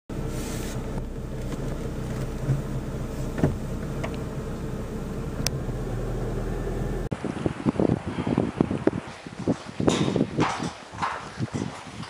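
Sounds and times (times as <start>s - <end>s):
car engine and road noise: 0.0s - 7.3s.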